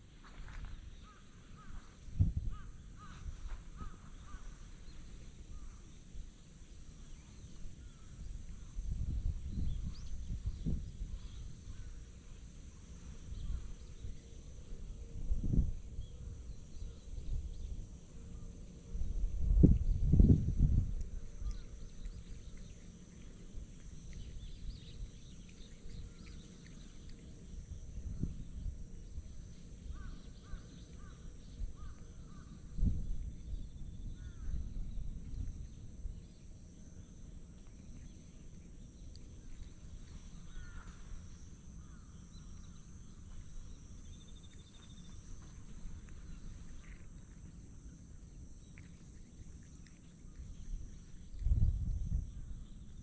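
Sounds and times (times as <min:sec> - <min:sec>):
bird calls: 0:00.2 - 0:06.0, 0:21.4 - 0:35.3, 0:37.8 - 0:47.4.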